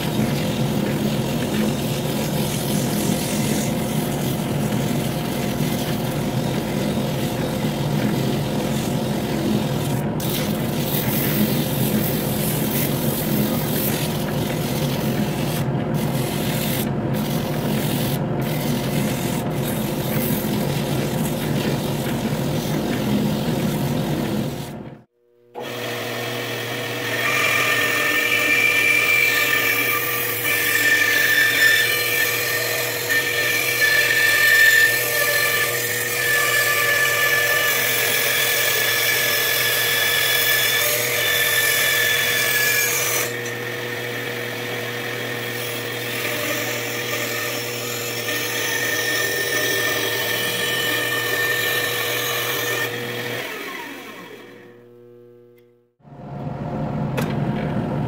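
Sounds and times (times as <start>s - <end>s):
bandsaw cutting wood: 25.6s - 54.8s
bandsaw motor running: 25.6s - 55.1s.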